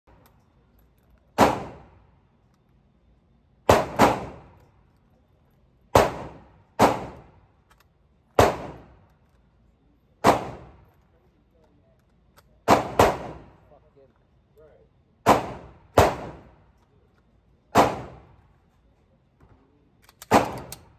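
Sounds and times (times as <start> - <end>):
gunshots echoing indoors: 1.4 - 2.0, 3.6 - 4.6, 5.9 - 7.4, 8.4 - 9.0, 10.2 - 10.9, 12.6 - 13.6, 15.2 - 16.6, 17.7 - 18.3.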